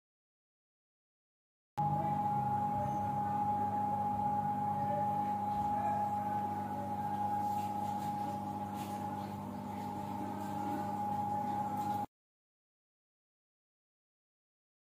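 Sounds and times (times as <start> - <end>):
steady two-tone hum: 1.8 - 12.1.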